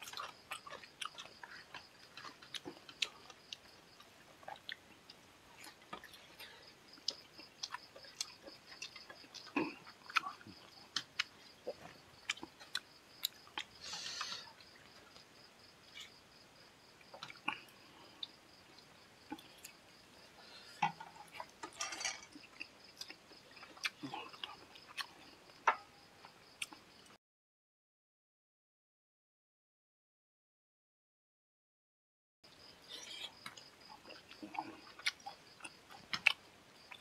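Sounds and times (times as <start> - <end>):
person eating with wet smacks: 0.0 - 15.3, 17.0 - 19.8, 20.8 - 25.8, 26.6 - 26.8, 32.9 - 37.0.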